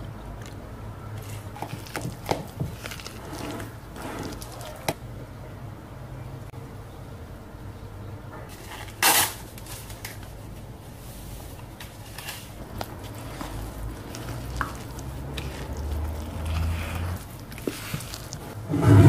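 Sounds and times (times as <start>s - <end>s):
spatula stirring batter: 1.1s - 5.1s, 9.5s - 19.0s
powder rustling from paper packet: 8.5s - 18.6s.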